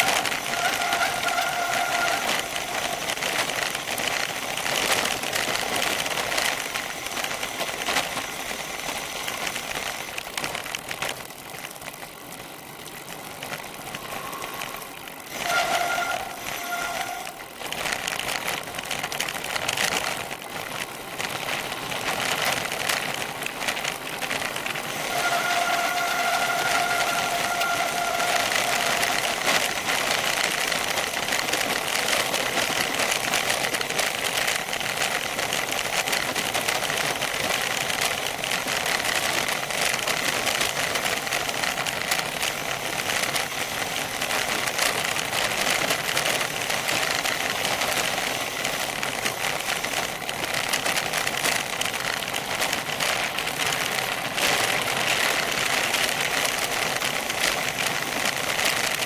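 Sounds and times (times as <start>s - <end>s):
high two-tone squeal: 0.0s - 3.7s, 13.9s - 17.4s, 25.0s - 29.9s
bicycle tyres on gravel: 0.0s - 59.0s.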